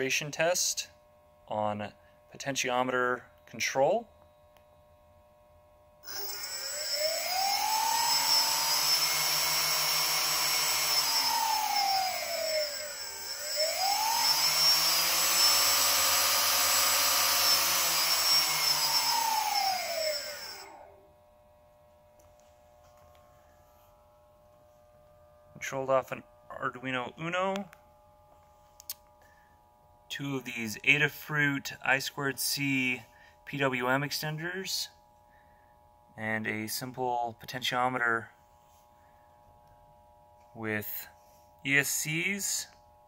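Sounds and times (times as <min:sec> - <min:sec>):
steady high whine: 0:06.0 - 0:29.5
ducted propeller fans spinning: 0:06.1 - 0:20.8.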